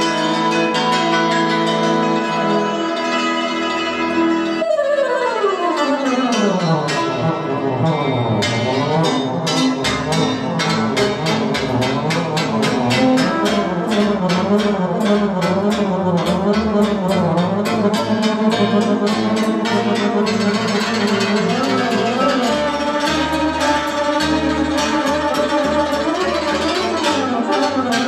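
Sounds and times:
band playing dance tune: 6.5s - 28.0s.

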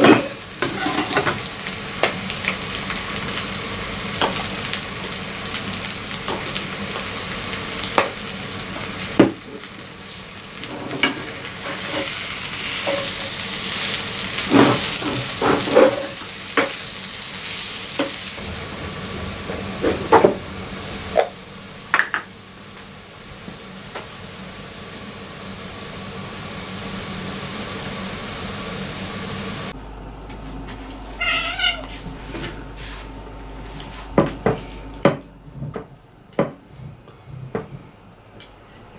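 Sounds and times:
filling sizzling in frying pan: 0.0s - 29.8s
metal spatula scraping pan: 0.2s - 1.4s
cat meowing: 31.2s - 32.0s.

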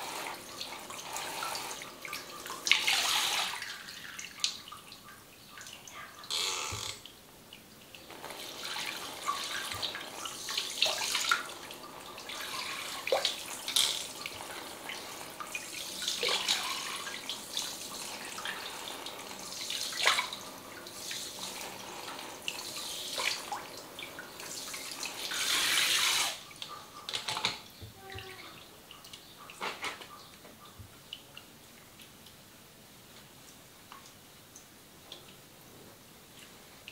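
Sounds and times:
shower water rinsing hair: 0.0s - 4.7s, 8.0s - 26.5s
water drips and splashes: 0.0s - 36.9s.

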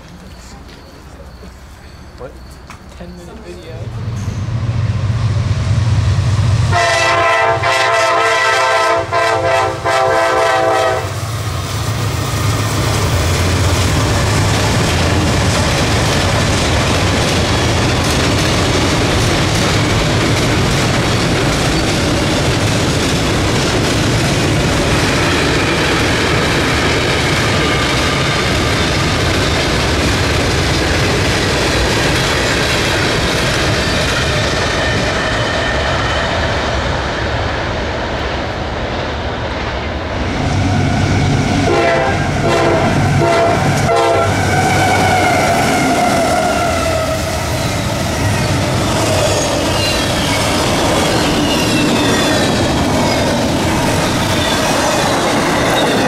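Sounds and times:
freight train passing: 0.0s - 56.0s
train horn blasts: 6.7s - 11.2s, 41.0s - 47.3s
wheels clacking over rail joints: 12.3s - 35.4s, 47.6s - 56.0s.

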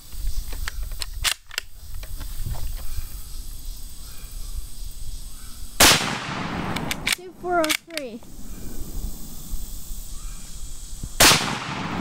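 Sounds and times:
rifle shot: 5.8s - 7.8s, 11.2s - 12.0s
light clicks: 6.7s - 8.3s.

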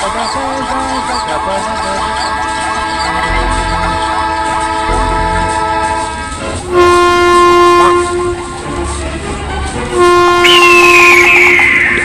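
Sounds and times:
locomotive horn blowing: 2.3s - 12.0s.

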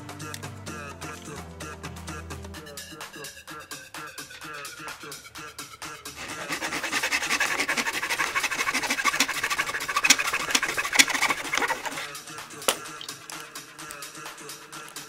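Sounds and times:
hand saw rasping through wood: 6.2s - 12.2s.

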